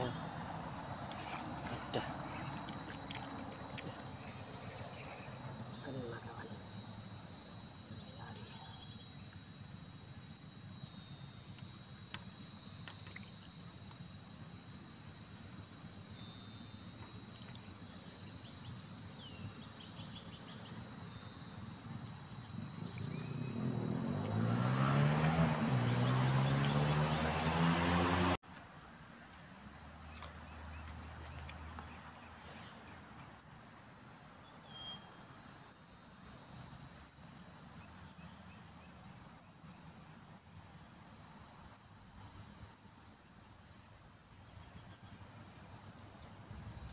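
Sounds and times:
passing vehicle engine: 0.0s - 6.3s, 22.6s - 28.4s
insects droning: 0.0s - 46.9s.

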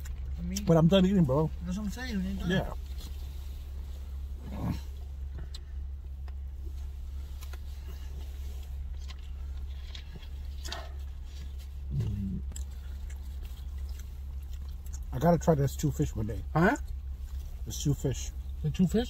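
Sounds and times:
car engine running: 0.0s - 19.0s
chewing: 7.3s - 15.3s
man murmuring: 11.9s - 12.5s.

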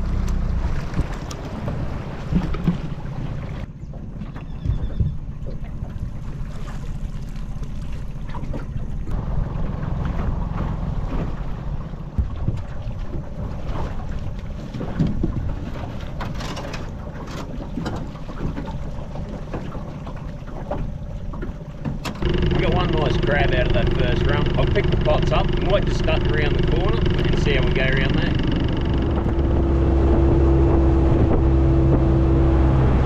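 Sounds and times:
wind rumble on microphone: 0.0s - 19.8s, 20.5s - 33.0s
knocks and rattles: 21.8s - 31.5s.

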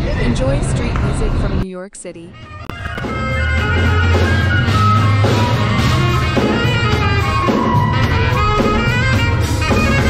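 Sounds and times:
deep bass line: 2.4s - 10.0s
flute melody: 2.4s - 10.0s
drum kit: 2.7s - 10.0s.

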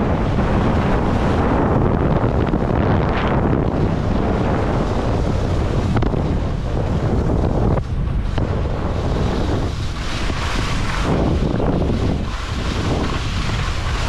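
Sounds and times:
wind buffeting microphone: 0.0s - 14.0s
skis hissing over snow: 8.5s - 14.0s.

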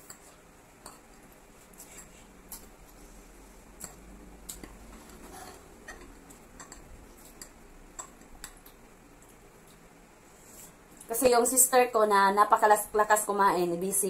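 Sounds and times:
forks scraping a plate: 5.0s - 6.1s.

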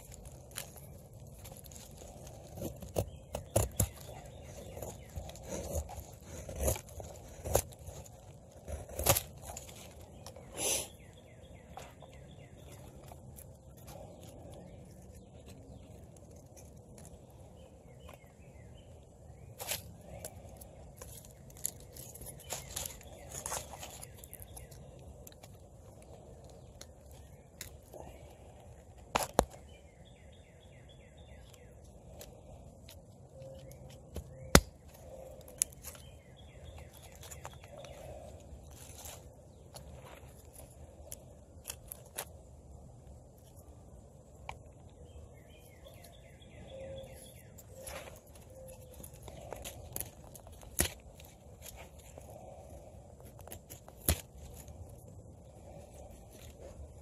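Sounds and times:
stick splitting: 0.0s - 10.9s, 28.9s - 29.7s, 32.1s - 42.4s, 47.4s - 52.5s, 53.2s - 55.0s
bird chirping: 0.0s - 53.1s
handling twigs and bark: 0.0s - 57.0s
knife scraping wood: 0.1s - 11.0s.

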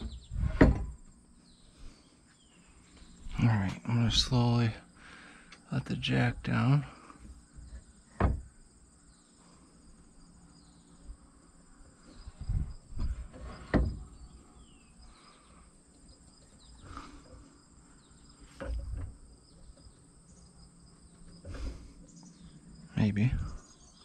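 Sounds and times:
dull knocks and thumps: 0.0s - 1.2s, 7.2s - 8.6s, 12.2s - 14.4s, 18.4s - 20.0s
crickets trilling: 0.0s - 24.0s.

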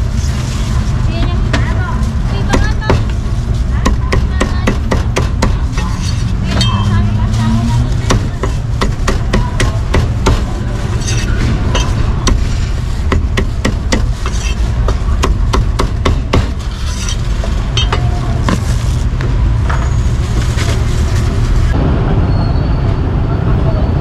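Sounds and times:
low rumble of street traffic: 0.0s - 24.0s
cleaver chopping meat: 3.9s - 5.9s.

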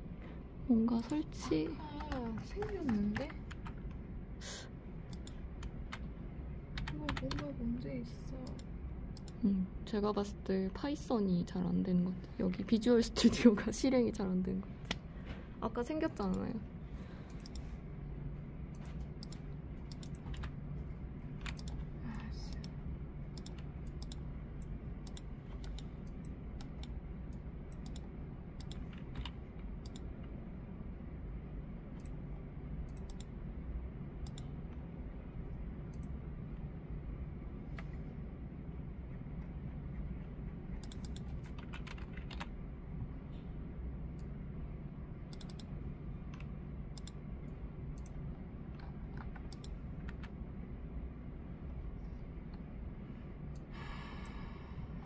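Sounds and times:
low room hum: 0.0s - 55.0s
computer mouse and keyboard clicks: 1.0s - 4.0s, 5.1s - 6.1s, 17.3s - 17.7s, 18.7s - 20.6s, 21.4s - 22.8s, 23.4s - 30.4s, 32.9s - 33.3s, 34.2s - 34.8s, 39.9s - 42.5s, 45.3s - 45.7s, 46.3s - 47.2s, 47.9s - 50.3s.

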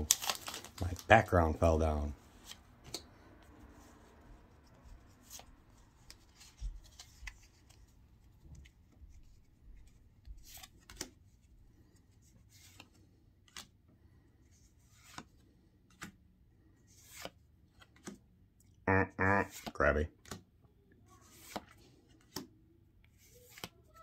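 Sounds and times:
cards sliding on cards: 2.3s - 7.9s, 8.6s - 11.2s, 11.8s - 13.8s, 14.5s - 16.2s, 16.8s - 18.2s, 21.2s - 22.5s, 23.1s - 23.8s.

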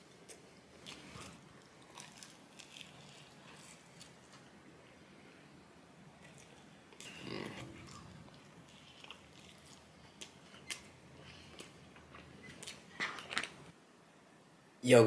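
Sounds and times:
chewing and mouth smacks: 0.2s - 4.4s, 6.2s - 13.7s.

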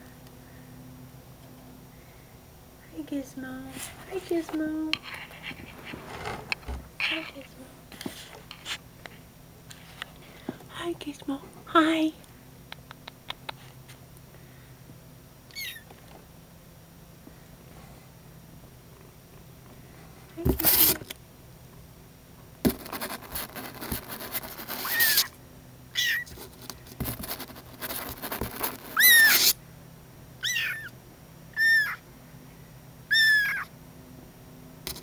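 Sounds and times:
rustling: 3.6s - 8.8s
kitten meowing: 15.5s - 15.9s, 24.8s - 25.3s, 26.0s - 26.3s, 29.0s - 29.6s, 30.4s - 31.0s, 31.6s - 32.0s, 33.1s - 33.7s.

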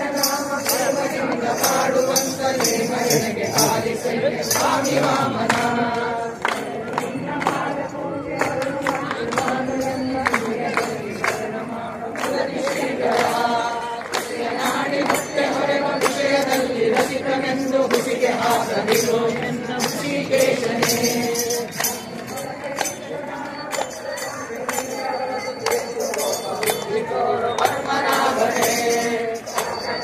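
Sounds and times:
group singing devotional song: 0.0s - 30.0s
jingling metal hand percussion: 0.0s - 30.0s.

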